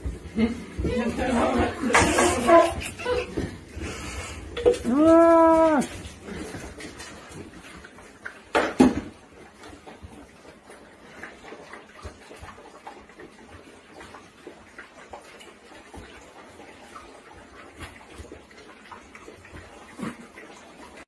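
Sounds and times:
puppies chewing and slurping: 0.0s - 21.0s.

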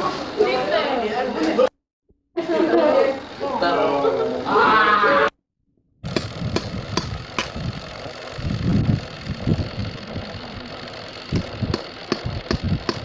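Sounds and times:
truck engine running: 2.4s - 4.6s, 6.0s - 13.0s
sharp clicks: 6.1s - 7.8s, 11.2s - 13.0s.

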